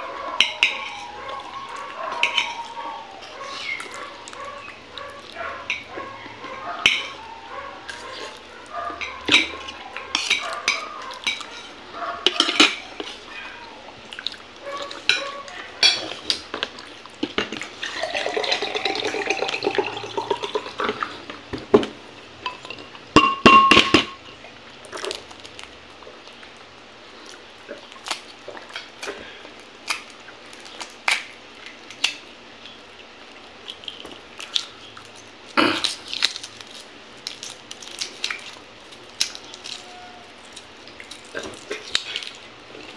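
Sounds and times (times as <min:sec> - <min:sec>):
spoon scraping on plate: 0:02.1 - 0:03.6.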